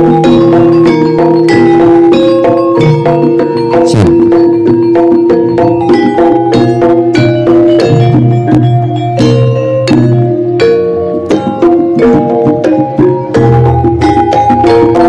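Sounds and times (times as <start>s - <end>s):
drum strokes: 0.0s - 15.0s
metallophones and gongs ringing: 0.0s - 15.0s.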